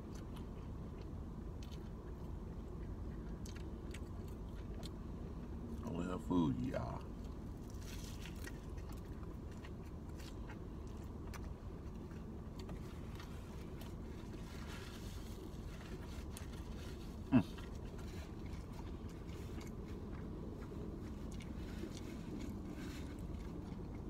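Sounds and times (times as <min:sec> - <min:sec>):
chewing: 0:00.0 - 0:24.0
low rumble inside car: 0:00.0 - 0:24.0
faint clicks and scrapes: 0:12.6 - 0:24.0.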